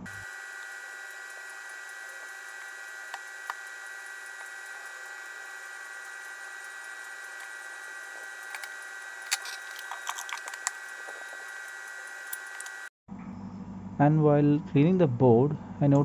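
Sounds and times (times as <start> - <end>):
high-pitched electrical whine: 0.0 - 14.6
small parts clicking: 0.6 - 12.9.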